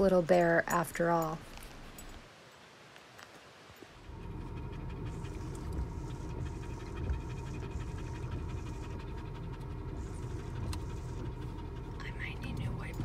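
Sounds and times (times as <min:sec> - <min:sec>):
vehicle rumbling on gravel road: 0:04.0 - 0:13.0
dog panting: 0:04.1 - 0:13.0.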